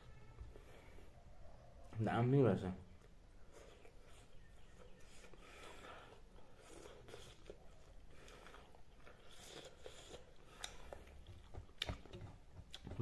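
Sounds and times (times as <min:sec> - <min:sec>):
man chewing food: 0:02.9 - 0:13.0.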